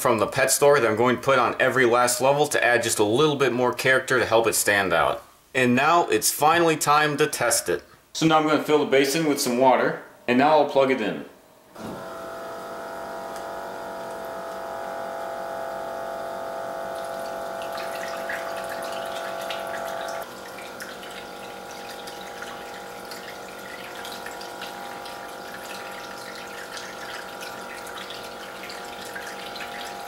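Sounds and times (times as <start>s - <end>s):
water pump whine: 11.7s - 30.0s
water trickling and splashing: 12.3s - 30.0s.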